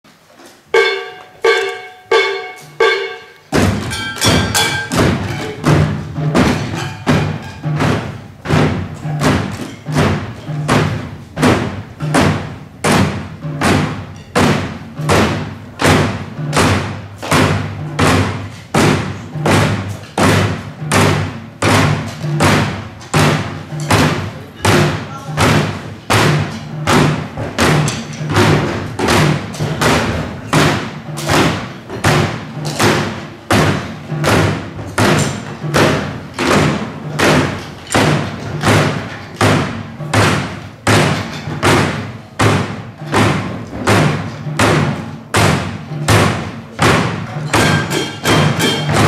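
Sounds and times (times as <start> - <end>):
ringing pitched percussion strikes: 0.7 - 8.0, 47.4 - 49.0.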